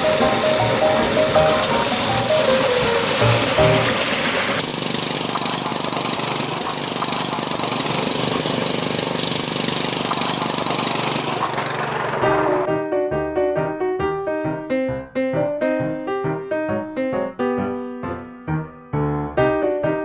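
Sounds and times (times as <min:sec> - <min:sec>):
music: 0:00.0 - 0:04.2, 0:12.7 - 0:20.0
piano music: 0:00.0 - 0:04.6, 0:12.1 - 0:20.0
rail trolley engine running: 0:00.0 - 0:12.7.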